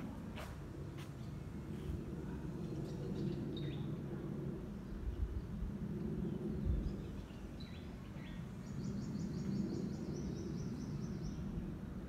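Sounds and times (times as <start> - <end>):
distant jet engine rumble: 0.0 - 12.0
birds chirping: 6.2 - 11.7.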